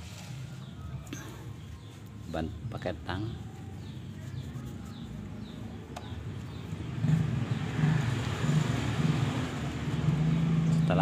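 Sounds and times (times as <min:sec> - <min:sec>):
motor vehicle engine running: 0:03.5 - 0:11.0.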